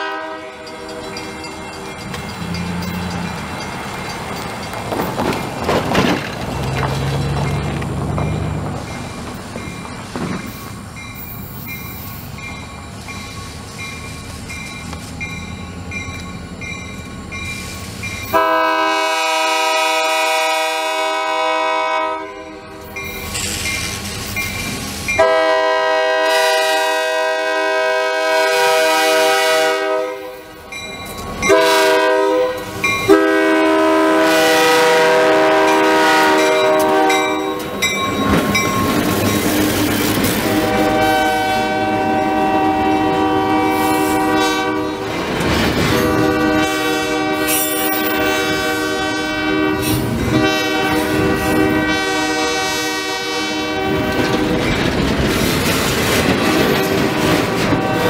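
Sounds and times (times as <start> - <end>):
locomotive air horn: 0.0 - 1.1, 18.3 - 22.9, 25.2 - 30.5, 31.5 - 37.7, 40.4 - 45.1, 45.9 - 54.5, 56.9 - 58.0
train engine and wheel noise: 0.0 - 58.0
bell dinging: 0.6 - 4.8, 36.4 - 39.7.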